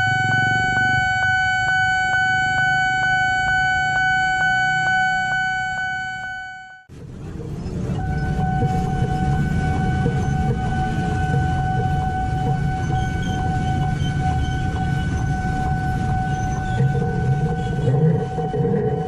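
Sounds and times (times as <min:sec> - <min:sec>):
motorbikes: 0:00.0 - 0:01.4
street traffic: 0:00.0 - 0:05.8, 0:06.9 - 0:19.0.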